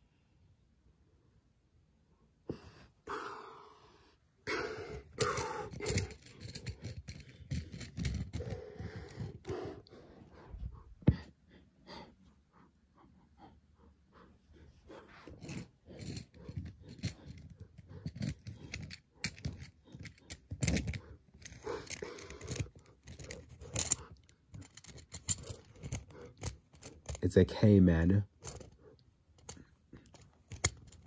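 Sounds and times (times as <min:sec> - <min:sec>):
plastic toys moved on carpet: 0:04.9 - 0:11.3, 0:14.6 - 0:27.2, 0:28.4 - 0:31.0.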